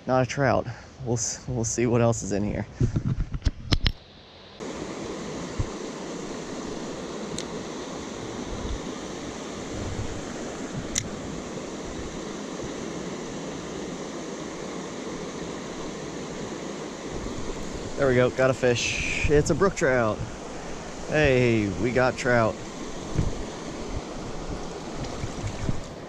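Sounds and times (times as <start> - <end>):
creek water rushing: 4.6 - 26.0.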